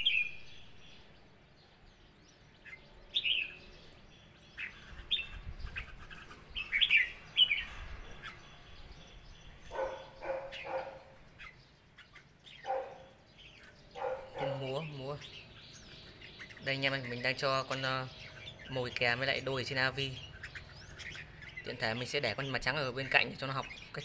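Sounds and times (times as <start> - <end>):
bulbuls chirping: 0.0 - 24.0.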